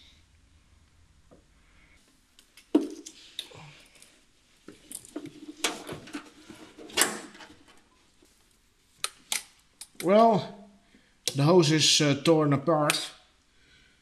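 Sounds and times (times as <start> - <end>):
plastic and metal parts rattling: 4.9 - 7.8.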